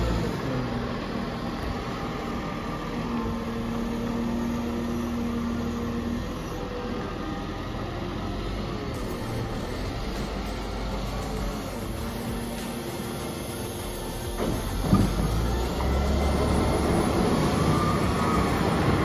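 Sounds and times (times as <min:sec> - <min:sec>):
diesel engine running: 0:00.0 - 0:19.0
steady whine: 0:00.0 - 0:19.0.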